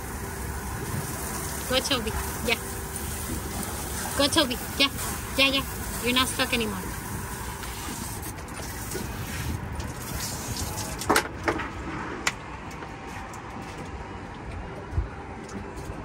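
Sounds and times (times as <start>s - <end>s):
boat engine rumble and hiss: 0.0s - 11.2s.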